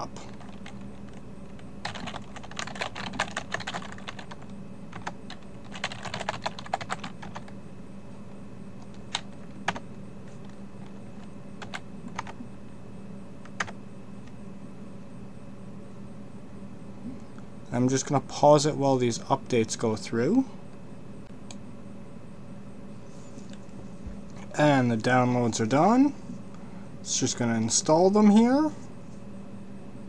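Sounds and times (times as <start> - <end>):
typing on computer keyboard: 0.3 - 1.2, 1.8 - 7.5.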